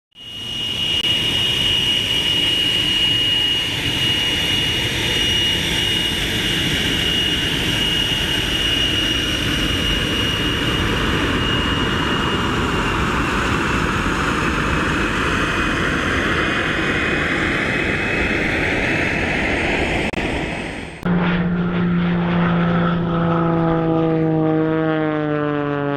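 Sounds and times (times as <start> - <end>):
jet turbine engine whine: 0.1 - 25.9
dense engine rumble: 4.8 - 25.1.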